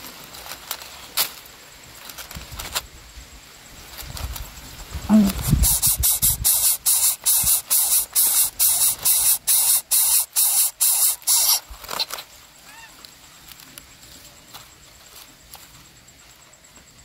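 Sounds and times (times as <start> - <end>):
nestlings hissing: 4.0 - 12.3.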